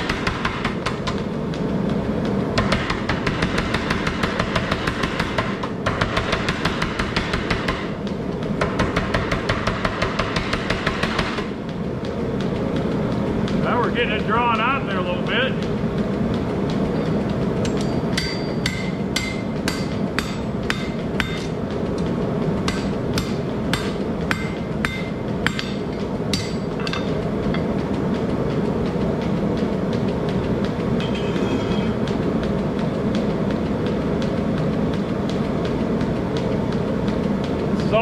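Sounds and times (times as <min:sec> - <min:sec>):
hammer striking hot steel on anvil: 0:00.0 - 0:01.3, 0:02.5 - 0:11.6, 0:16.9 - 0:22.0, 0:22.6 - 0:27.7, 0:31.0 - 0:32.1
gas forge roaring: 0:00.0 - 0:38.0.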